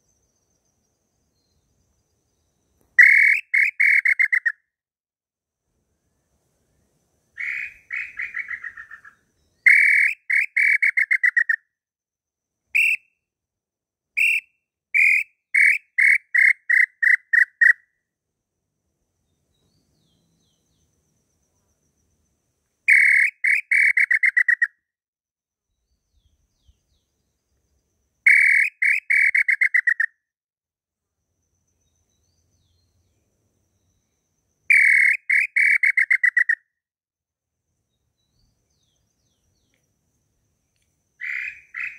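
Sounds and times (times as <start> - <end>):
whistled bird call on a hunting call: 2.3 - 4.6, 7.4 - 11.7, 12.7 - 13.2, 14.2 - 17.9, 22.9 - 24.8, 28.2 - 30.2, 33.8 - 36.7, 41.2 - 41.9.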